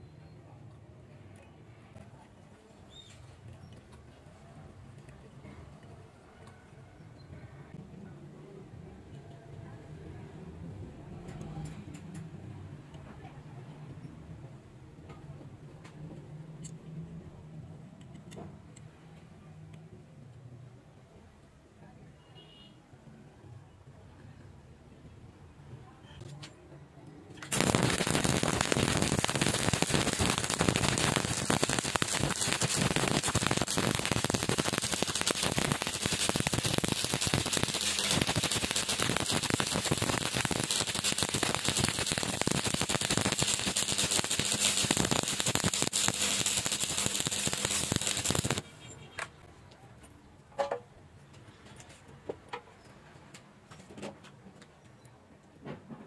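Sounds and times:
welding arc crackling: 27.5 - 48.7.

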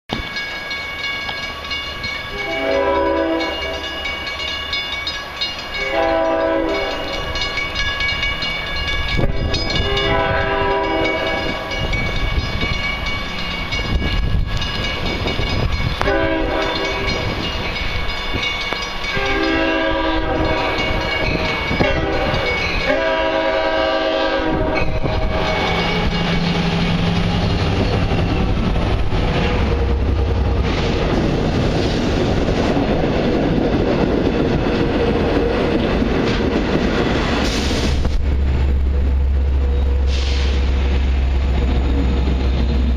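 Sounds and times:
crossing bells ringing: 0.1 - 36.2
locomotive horn blasts: 2.3 - 4.2, 5.8 - 7.2, 9.2 - 11.8, 16.0 - 17.4, 19.1 - 26.3.

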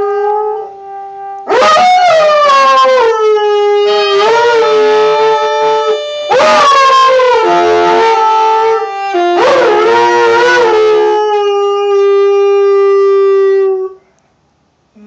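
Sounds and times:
wind instrument holding notes: 3.0 - 13.9
dog howling: 9.4 - 14.0.

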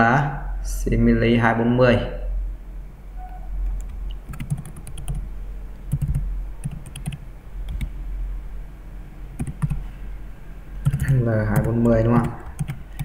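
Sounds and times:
low steady hum: 0.0 - 13.0
keyboard typing: 3.6 - 5.2, 5.9 - 8.0, 9.4 - 9.9, 10.8 - 13.0.

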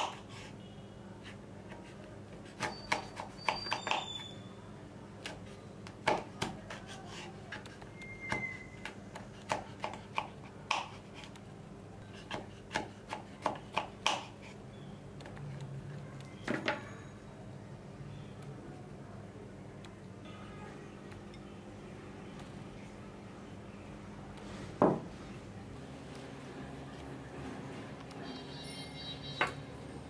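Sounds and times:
knife chopping on cutting board: 9.4 - 11.0, 12.2 - 14.4.

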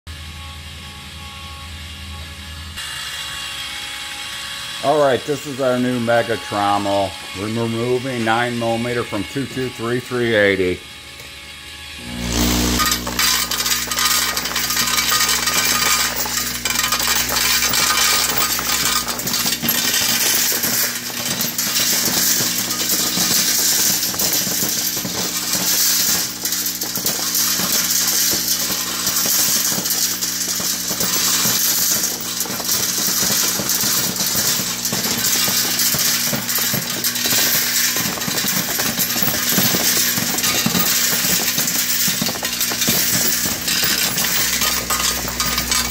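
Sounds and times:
machine low hum: 11.6 - 45.9
brass cases clinking in drum: 12.8 - 45.9.

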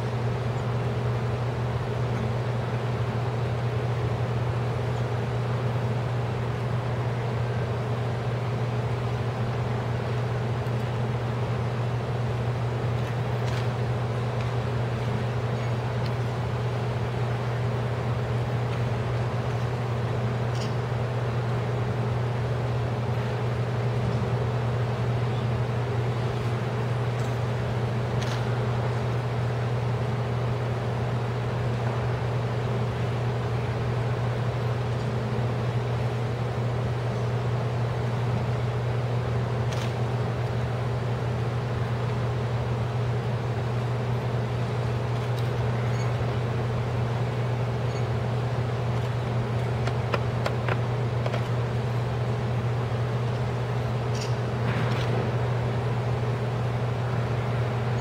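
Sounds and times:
indoor hall background drone: 0.0 - 58.0.

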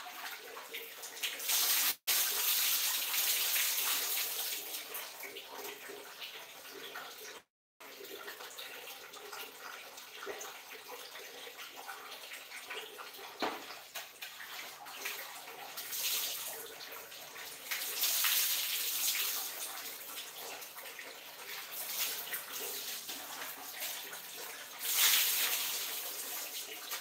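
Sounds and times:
running water: 0.0 - 27.0
water pouring onto tiled floor: 1.2 - 5.4, 14.2 - 27.0.

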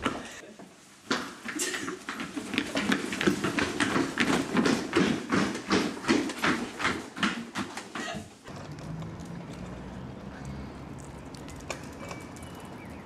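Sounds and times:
footsteps: 0.0 - 9.8.

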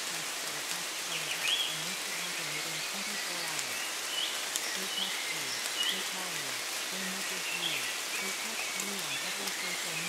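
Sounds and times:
steady rain: 0.0 - 10.0
faint low voice speaking: 4.7 - 10.0.

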